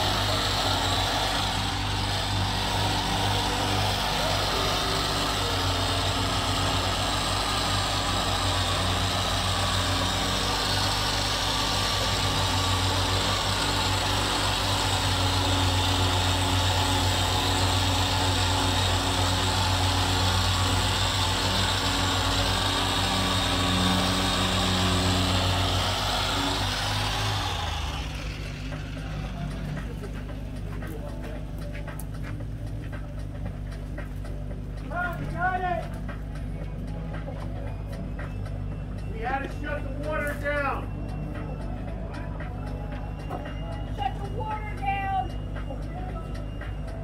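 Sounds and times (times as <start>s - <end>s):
small engine humming: 0.0s - 47.0s.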